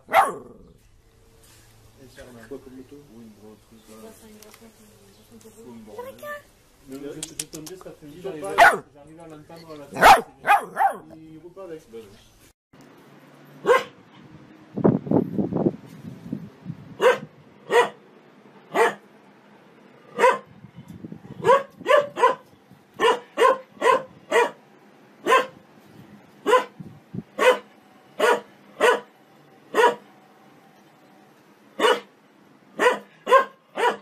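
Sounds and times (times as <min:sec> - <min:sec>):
dog barking: 0:00.0 - 0:00.7, 0:08.5 - 0:08.9, 0:10.0 - 0:11.1, 0:13.6 - 0:14.0, 0:17.0 - 0:18.0, 0:18.7 - 0:19.0, 0:20.2 - 0:20.5, 0:21.4 - 0:24.6, 0:25.2 - 0:25.6, 0:26.4 - 0:26.8, 0:27.4 - 0:29.1, 0:29.7 - 0:30.0, 0:31.8 - 0:32.1, 0:32.8 - 0:34.0.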